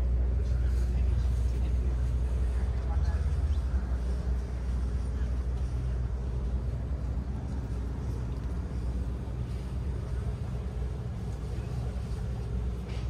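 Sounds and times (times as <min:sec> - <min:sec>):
low mechanical hum and rumble: 0:00.0 - 0:13.0.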